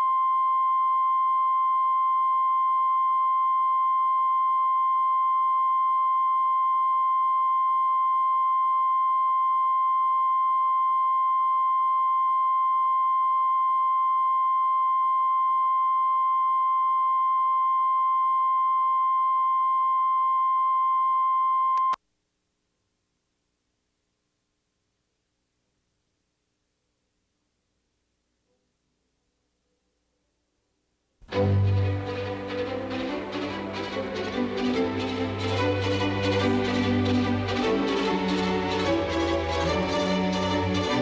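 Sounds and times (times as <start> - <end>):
steady test tone: 31.2 - 41.0.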